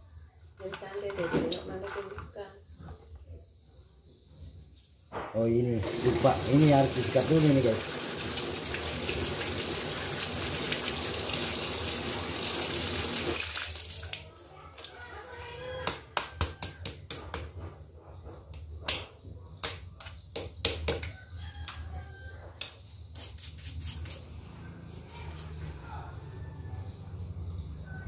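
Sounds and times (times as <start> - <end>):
tap water running: 5.8 - 14.4.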